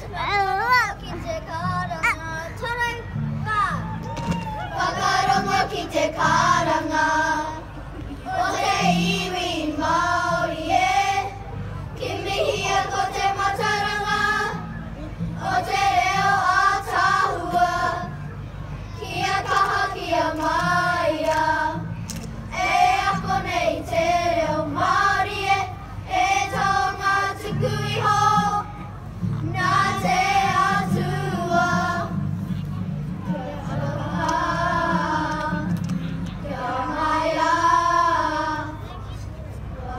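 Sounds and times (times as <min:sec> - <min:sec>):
children singing in unison: 0:04.8 - 0:11.4, 0:12.0 - 0:14.6, 0:15.4 - 0:18.2, 0:22.5 - 0:28.7, 0:29.5 - 0:32.1, 0:33.3 - 0:35.7, 0:36.4 - 0:38.9.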